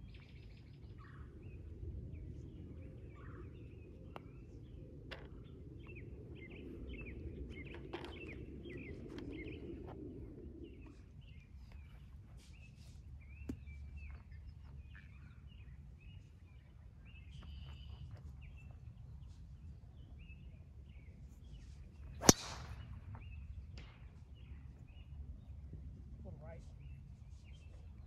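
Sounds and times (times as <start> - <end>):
birds chirping: 0.1 - 27.8
golf club striking ball: 22.2 - 22.8.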